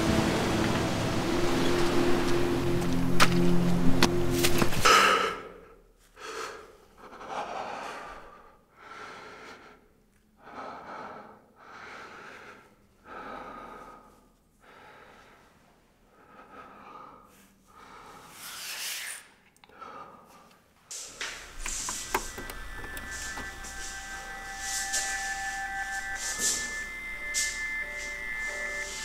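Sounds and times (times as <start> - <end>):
man breathing heavily: 4.8 - 18.4, 19.6 - 21.6.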